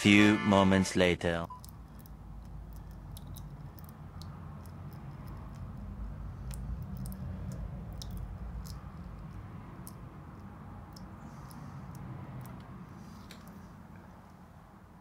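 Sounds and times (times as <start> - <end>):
oil draining in thin stream: 1.5 - 12.6
low steady rumble: 1.5 - 15.0.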